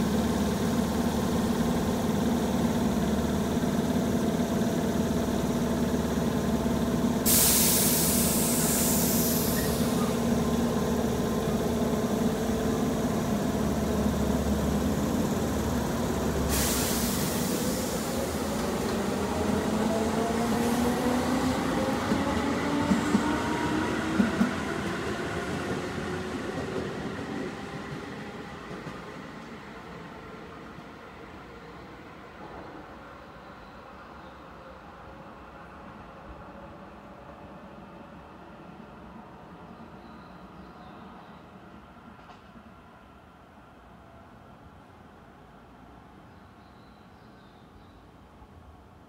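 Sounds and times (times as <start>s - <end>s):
loud hiss of air: 7.2s - 10.4s, 16.3s - 19.7s.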